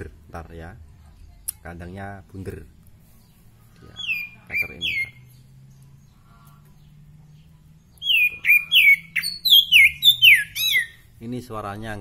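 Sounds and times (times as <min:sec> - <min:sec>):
bird singing whistled notes: 0:03.9 - 0:06.0, 0:07.3 - 0:11.2.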